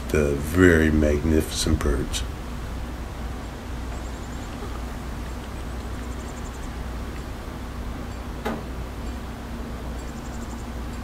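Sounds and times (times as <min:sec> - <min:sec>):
low outdoor rumble: 0:00.0 - 0:11.0
faint high rapid ticking: 0:03.0 - 0:11.0.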